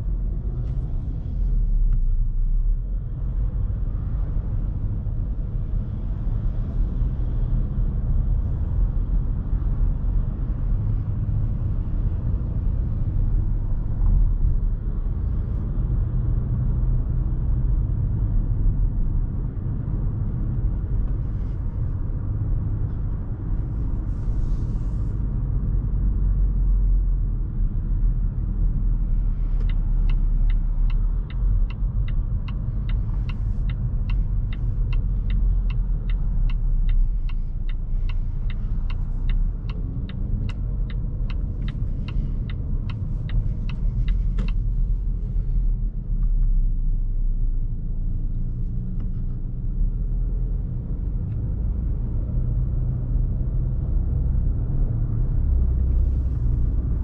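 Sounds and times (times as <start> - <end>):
low rumble of engine and tyres: 0.0 - 57.0
turn signal ticking: 28.4 - 46.6.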